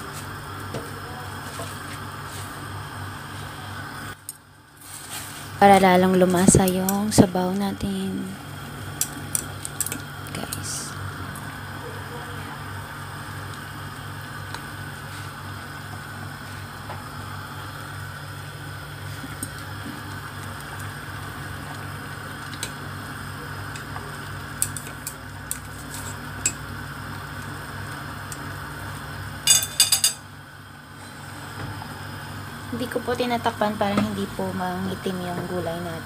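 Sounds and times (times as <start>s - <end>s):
steady low hum: 0.0s - 36.0s
water simmering in pot: 17.5s - 29.4s
chopsticks clicking against pot: 24.6s - 25.6s.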